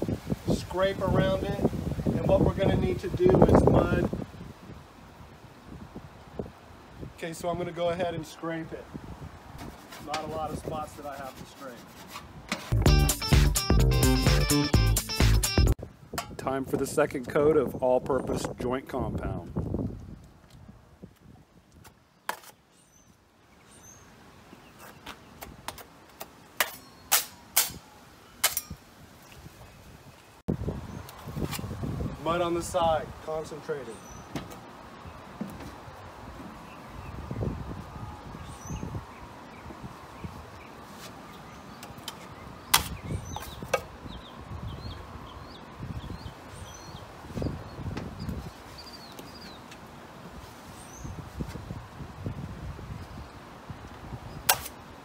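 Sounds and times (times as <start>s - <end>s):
taping knife scraping metal pan: 9.6s - 12.8s
birds chirping faintly: 21.9s - 31.2s, 32.2s - 49.9s.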